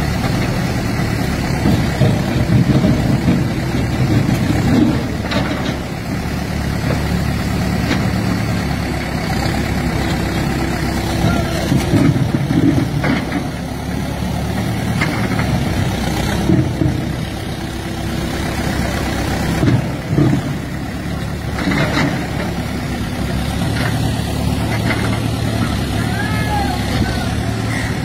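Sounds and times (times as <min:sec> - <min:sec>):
diesel engine running: 0:00.0 - 0:28.0
knocks and clanks: 0:01.6 - 0:06.0, 0:11.2 - 0:13.7, 0:14.8 - 0:17.3, 0:21.5 - 0:22.8, 0:23.5 - 0:25.9.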